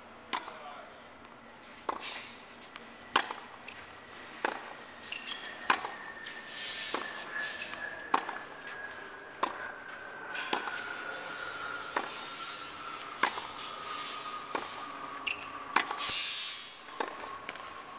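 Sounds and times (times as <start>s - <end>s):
tennis balls struck by rackets: 0.3s - 0.7s, 2.8s - 3.7s, 4.4s - 4.8s, 7.6s - 8.4s, 9.4s - 9.6s, 10.3s - 10.8s, 13.0s - 13.6s, 14.5s - 17.6s
tennis balls bouncing on hard court: 3.1s - 5.9s, 14.5s - 16.0s, 16.9s - 17.7s.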